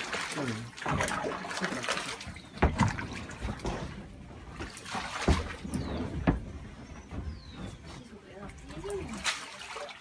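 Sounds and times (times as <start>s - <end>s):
water trickling from a hose: 0.0s - 6.5s, 8.0s - 10.0s.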